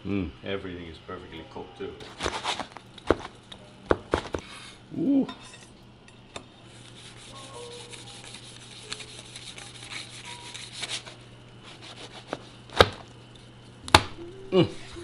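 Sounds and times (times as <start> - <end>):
knife sawing through crust: 6.7 - 12.6.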